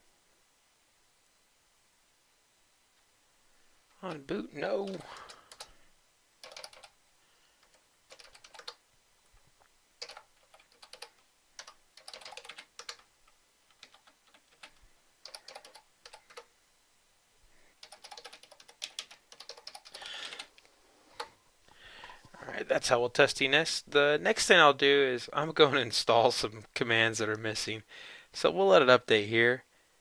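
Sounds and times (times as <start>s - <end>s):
typing on computer keyboard: 4.9s - 5.8s, 6.4s - 7.0s, 7.6s - 8.8s, 10.0s - 16.5s, 17.8s - 20.6s.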